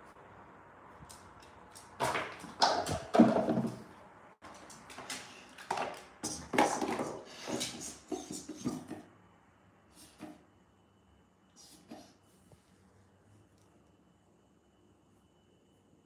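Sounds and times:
dog toys clattering on tiled floor: 2.0s - 3.9s, 4.5s - 9.0s.

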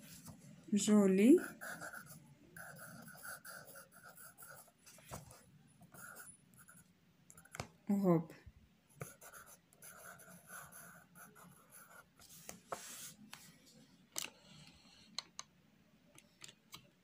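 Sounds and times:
pencil scratching on paper: 1.3s - 6.8s, 9.0s - 13.2s.

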